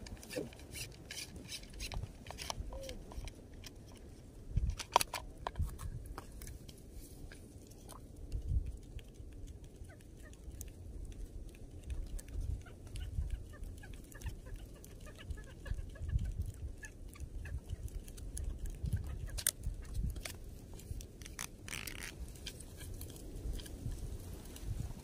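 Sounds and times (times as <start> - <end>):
wind buffeting microphone: 4.4 - 4.8, 10.9 - 21.2, 22.2 - 25.0.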